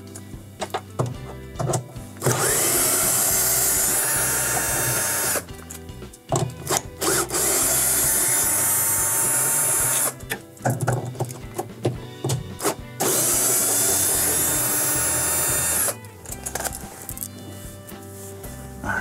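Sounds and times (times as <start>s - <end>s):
cordless drill whining: 2.2s - 5.5s, 7.0s - 10.2s, 13.0s - 16.0s.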